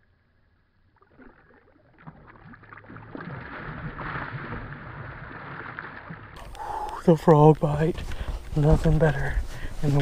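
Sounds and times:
fish thrashing and splashing: 0:01.1 - 0:06.5.

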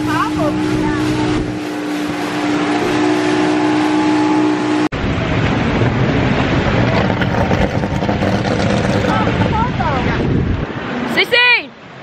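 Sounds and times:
wind buffeting microphone: 0:00.0 - 0:03.0, 0:05.0 - 0:11.1
rushing water: 0:00.0 - 0:12.0
speedboat engine droning: 0:00.0 - 0:12.0.

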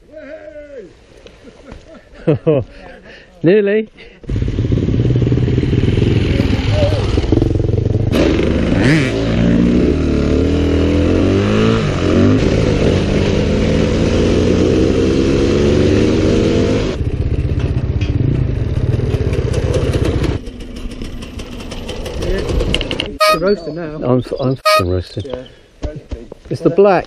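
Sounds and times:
motorcycle engine revving: 0:04.2 - 0:23.4.

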